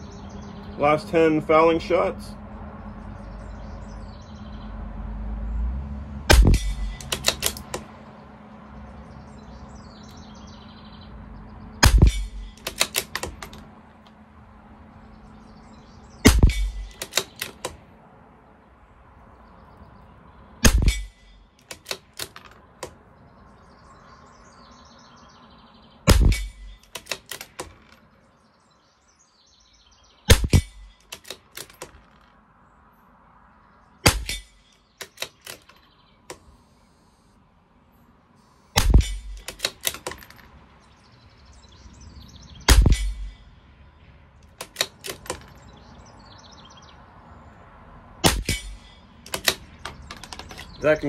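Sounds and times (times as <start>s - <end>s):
rifle shots: 6.3s - 7.8s, 11.8s - 13.6s, 16.2s - 17.6s, 20.6s - 21.2s, 26.1s - 27.8s, 30.3s - 31.7s, 38.8s - 40.3s, 48.2s - 49.7s
rifle bolt clicks: 6.3s - 7.9s, 11.8s - 13.7s, 16.3s - 17.8s, 20.6s - 23.0s, 26.1s - 28.0s, 30.3s - 32.3s, 34.1s - 36.5s, 38.8s - 40.5s, 44.4s - 45.6s, 48.2s - 50.8s.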